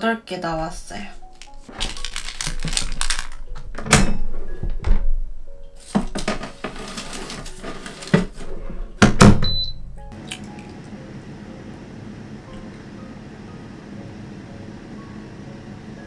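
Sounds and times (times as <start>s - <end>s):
tray and door clunking: 2.5s - 5.2s, 5.8s - 9.6s
air fryer fan humming: 5.5s - 16.0s.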